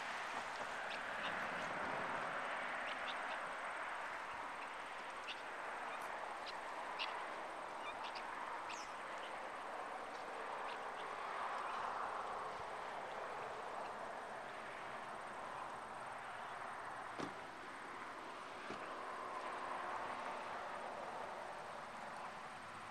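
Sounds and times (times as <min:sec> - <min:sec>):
outdoor background hiss: 0:00.0 - 0:22.9
guinea fowl chirping: 0:04.6 - 0:07.2, 0:07.8 - 0:09.3.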